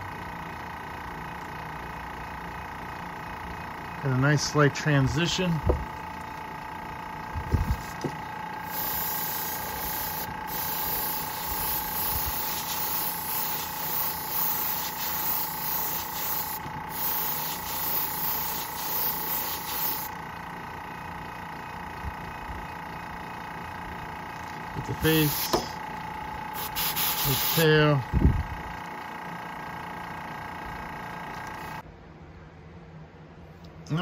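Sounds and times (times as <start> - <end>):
background hum: 0.0 - 34.0
airbrush spraying hiss: 8.6 - 20.1, 25.0 - 25.7, 26.5 - 27.7.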